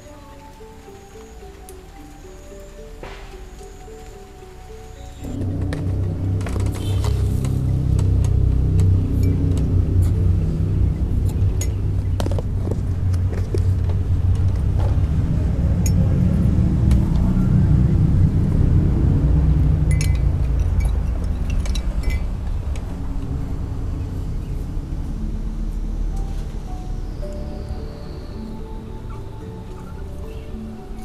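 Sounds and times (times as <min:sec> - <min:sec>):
steady low rumble: 0:02.8 - 0:30.9.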